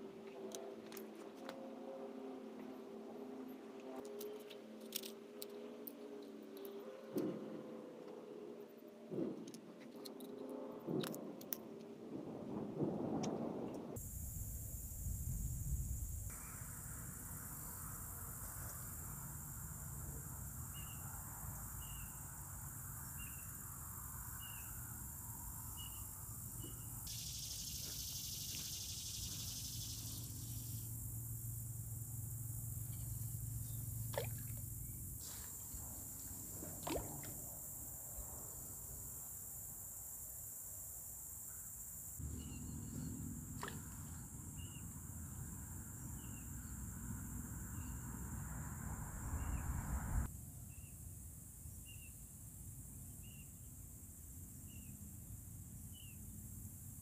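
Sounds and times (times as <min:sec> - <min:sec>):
high insect drone: 0:14.0 - 0:50.9
low rumble: 0:48.8 - 0:50.3.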